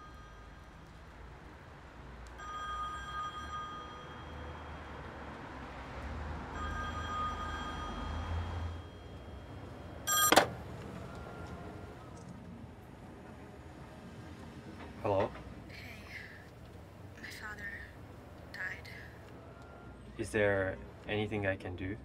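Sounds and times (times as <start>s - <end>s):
payphone ringing: 2.4s - 4.6s, 6.5s - 12.0s
receiver lifted off hook: 10.1s - 10.6s.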